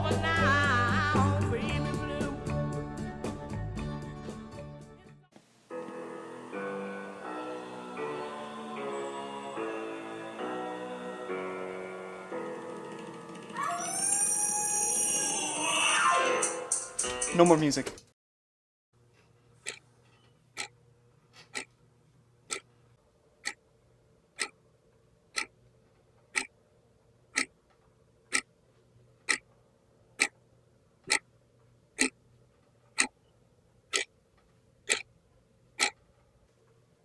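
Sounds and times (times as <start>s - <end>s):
wall clock ticking: 21.5s - 21.7s, 22.5s - 22.7s, 24.4s - 24.6s, 25.3s - 25.5s, 26.3s - 26.5s, 27.3s - 27.6s, 28.3s - 28.5s, 29.2s - 29.5s, 32.0s - 32.2s, 33.0s - 33.2s, 33.9s - 34.1s, 34.8s - 35.1s, 35.8s - 36.0s.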